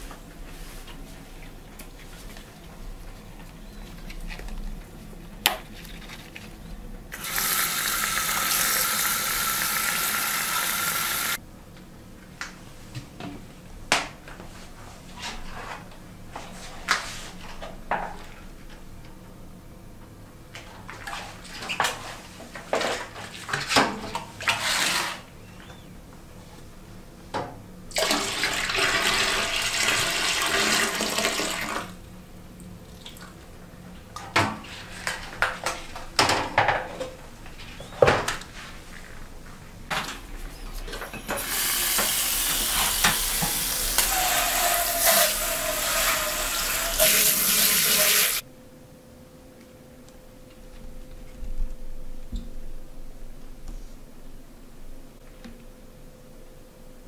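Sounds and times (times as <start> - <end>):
running water: 7.2 - 11.4, 41.3 - 48.4
liquid splashing into toilet: 27.9 - 31.9.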